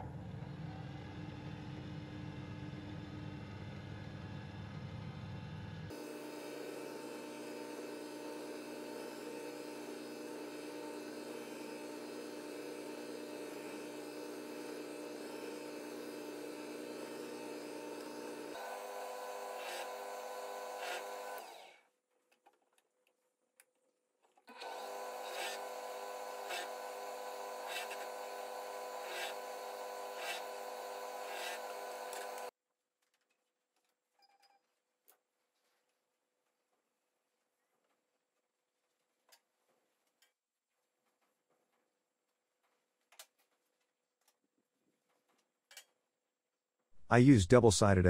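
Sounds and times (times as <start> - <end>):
drill press motor humming: 3.0 - 21.8, 24.5 - 32.5
drill bit boring into wood: 5.9 - 21.8, 24.5 - 32.5.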